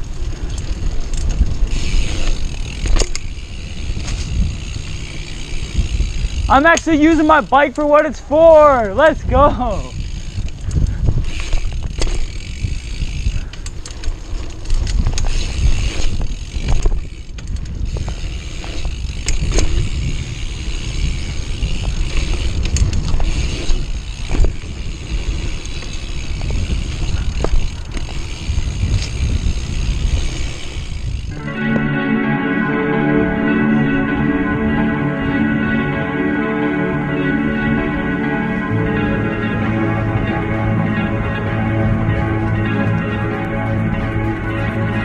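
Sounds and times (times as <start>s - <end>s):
wind rumble on microphone: 0.0s - 7.6s, 8.8s - 31.4s
bike clicks and rattles: 0.0s - 31.4s
tyres crunching over dirt: 10.0s - 31.4s.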